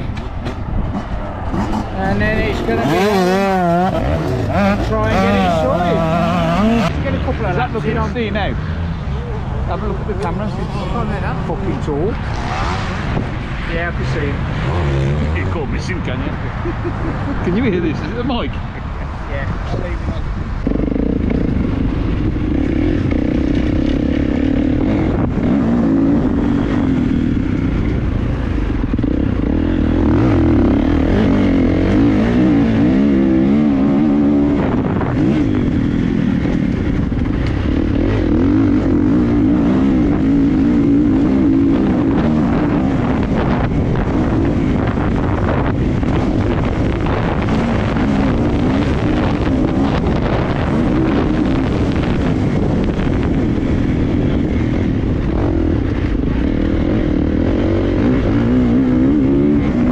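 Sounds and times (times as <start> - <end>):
motocross bike engines revving: 0.0 - 59.9.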